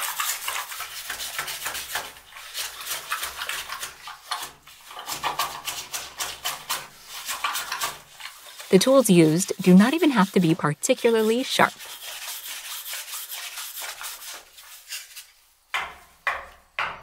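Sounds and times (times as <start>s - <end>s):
wet clay scraping and squelching: 0.0s - 15.4s.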